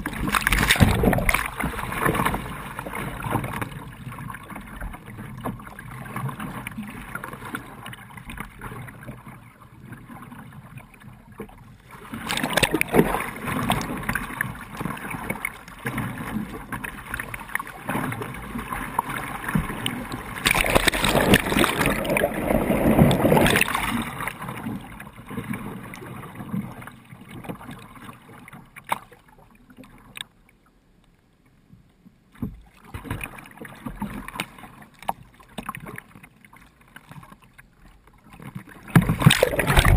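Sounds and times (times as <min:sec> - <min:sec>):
river water rushing: 0:20.4 - 0:24.2.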